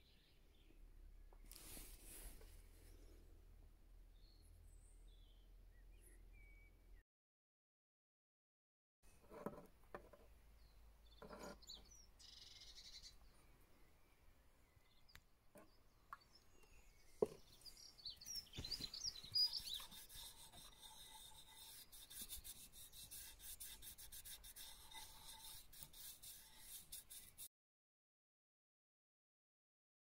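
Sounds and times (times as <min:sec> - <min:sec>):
bird chirping: 0:04.1 - 0:07.0, 0:10.6 - 0:24.0
hand rubbing wood: 0:11.1 - 0:11.9, 0:18.2 - 0:27.5.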